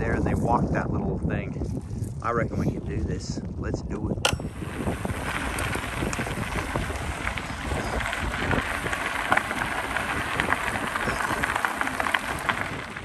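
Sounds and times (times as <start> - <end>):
wind rumbling on microphone: 0.0 - 13.0
bicycle tyres crunching on gravel: 4.4 - 13.0.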